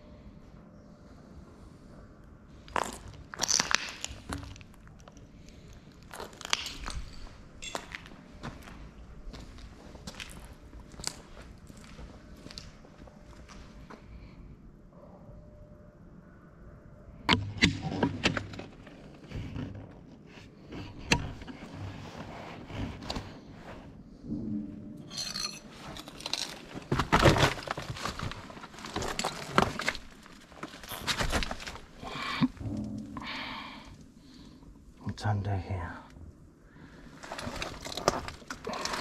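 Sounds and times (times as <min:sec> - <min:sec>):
footsteps crunching on rubble: 0:02.7 - 0:14.0, 0:25.8 - 0:32.8, 0:37.1 - 0:39.0.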